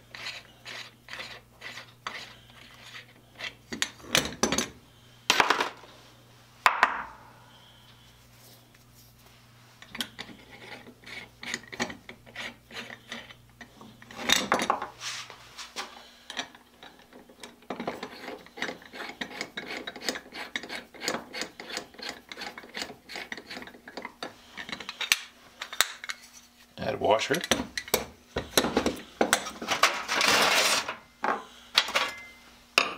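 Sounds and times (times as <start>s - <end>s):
metal parts scraping: 29.4s - 31.0s.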